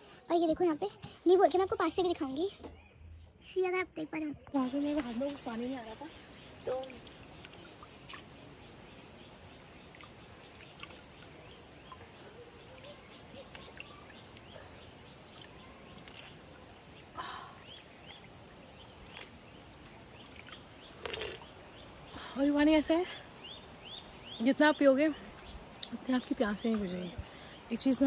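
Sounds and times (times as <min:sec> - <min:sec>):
water trickling into hands: 0:04.6 - 0:28.0
faint sipping: 0:17.2 - 0:22.4.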